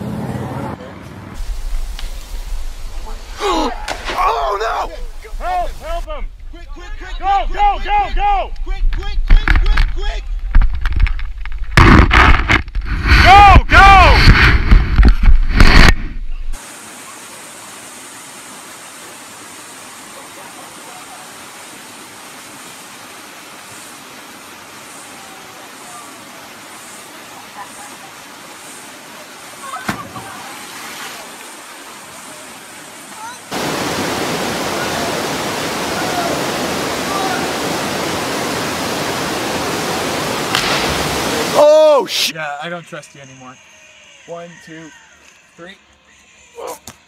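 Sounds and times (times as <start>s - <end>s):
waterfall rushing: 1.3s - 6.1s, 16.6s - 42.3s
burst of noise: 1.4s - 6.6s, 11.7s - 16.9s, 33.5s - 41.6s
person shouting: 3.4s - 4.7s, 13.2s - 14.2s, 36.0s - 36.4s, 41.5s - 42.3s.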